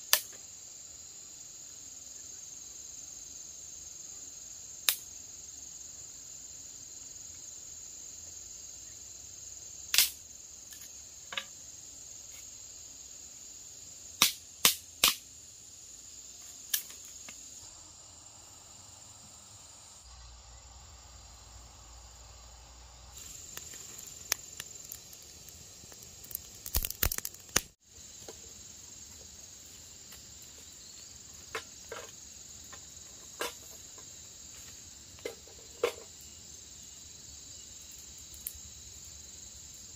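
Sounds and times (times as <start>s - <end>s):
high-pitched insect chorus: 0.0s - 39.9s
sticks snapping and clicking: 9.9s - 10.2s, 14.2s - 15.2s, 25.9s - 27.7s.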